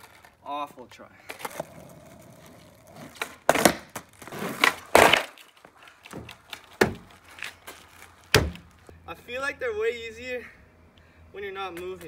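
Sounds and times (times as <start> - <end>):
skateboard clacking on concrete: 1.3 - 7.5.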